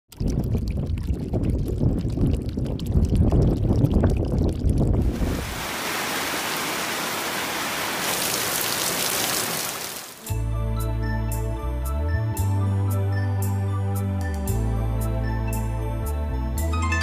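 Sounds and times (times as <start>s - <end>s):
gusting rush of noise: 5.0s - 8.0s
heavy rain hissing: 5.1s - 10.2s.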